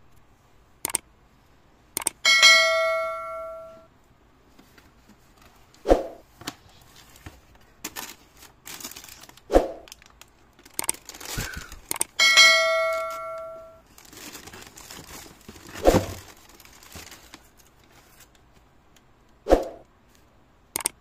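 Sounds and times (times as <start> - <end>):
bell-like chime: 2.3 - 3.9, 12.2 - 13.8
paper crinkling and tearing: 6.7 - 11.9, 13.8 - 18.5.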